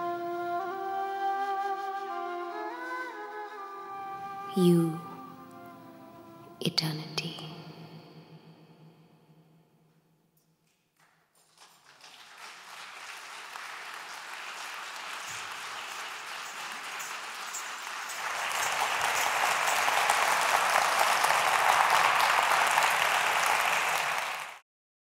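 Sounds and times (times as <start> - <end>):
audience applauding: 11.0 - 24.6.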